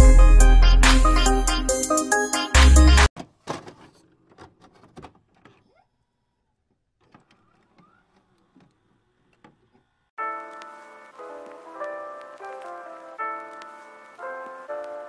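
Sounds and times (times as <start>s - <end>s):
heavy bass hit: 0.0s - 1.4s
electronic intro music: 0.0s - 3.1s.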